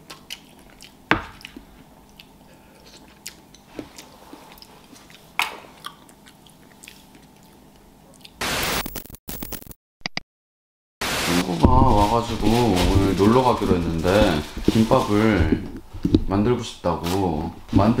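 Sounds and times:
chewing: 0:00.0 - 0:08.4
loud hiss burst: 0:11.0 - 0:12.6.

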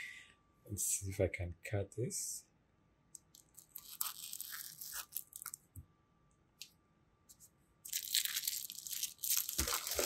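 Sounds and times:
plastic wrap crinkling: 0:03.4 - 0:05.6, 0:07.9 - 0:10.0.

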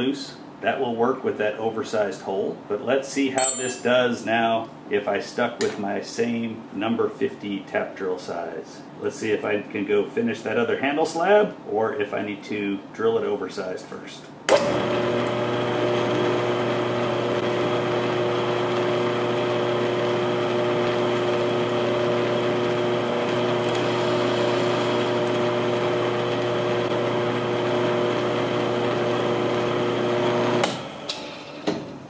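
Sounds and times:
drill press motor humming: 0:14.5 - 0:31.4.

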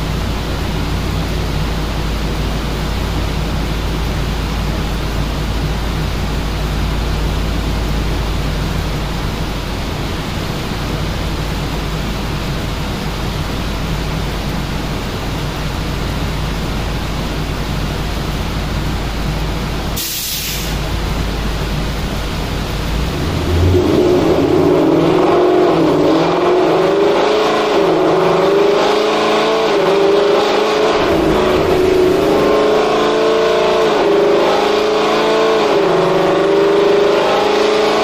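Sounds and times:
air rushing: 0:18.7 - 0:26.0, 0:30.7 - 0:34.2
short sharp hiss: 0:20.0 - 0:20.9
low hum: 0:30.6 - 0:34.5.

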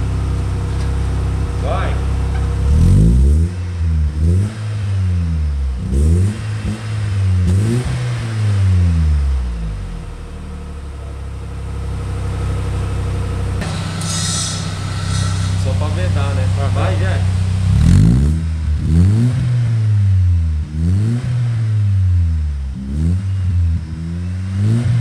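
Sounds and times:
engine idling: 0:00.0 - 0:07.4, 0:09.2 - 0:20.8
engine revving: 0:01.3 - 0:10.5, 0:13.6 - 0:25.0.

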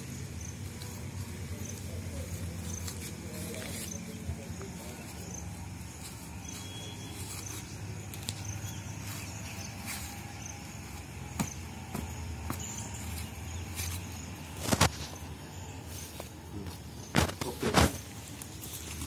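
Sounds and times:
faint high chirps: 0:05.2 - 0:10.9.

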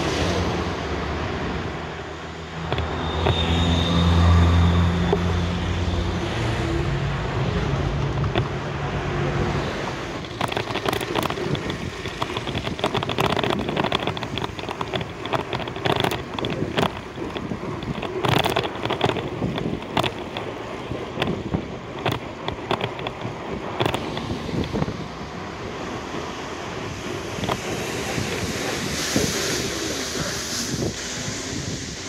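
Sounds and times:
street traffic: 0:00.0 - 0:32.0
sharp clicks and knocks: 0:02.6 - 0:03.6, 0:07.9 - 0:08.8, 0:10.0 - 0:25.0, 0:27.2 - 0:28.5
wind buffeting microphone: 0:04.2 - 0:32.0.

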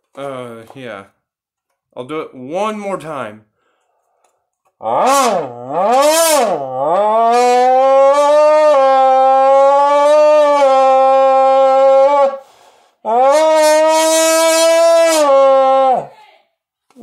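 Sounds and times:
person buzzing into a can: 0:04.8 - 0:10.6.

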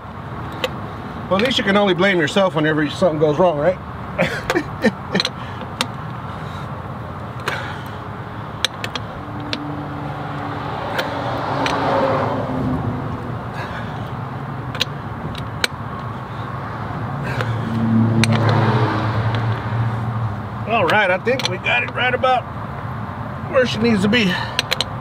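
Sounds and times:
ratchet clicking on bolts: 0:08.6 - 0:09.6, 0:14.0 - 0:16.1, 0:24.4 - 0:25.0.

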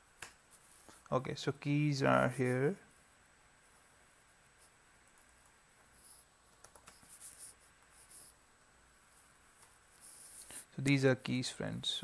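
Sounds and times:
computer keyboard keystrokes: 0:06.5 - 0:07.1.

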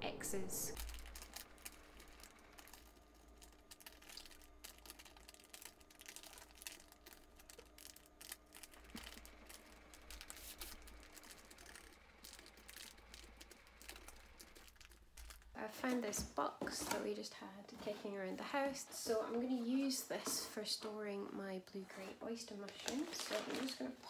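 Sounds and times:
plastic bag crinkling: 0:00.7 - 0:17.1, 0:22.0 - 0:24.0.

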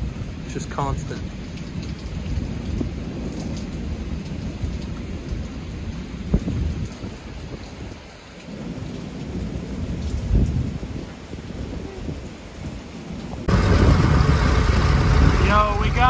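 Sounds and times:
steady rain: 0:00.0 - 0:16.0
rolling thunder: 0:13.4 - 0:16.0.

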